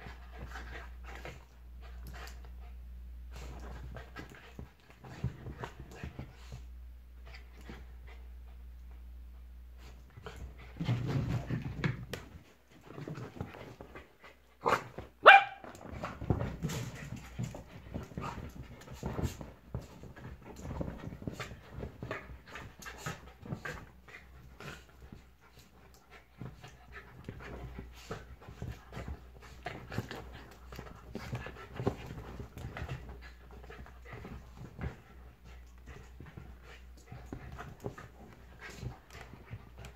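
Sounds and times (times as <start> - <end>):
dogs scuffling: 9.8 - 39.9
dog barking sharply: 15.2 - 15.6.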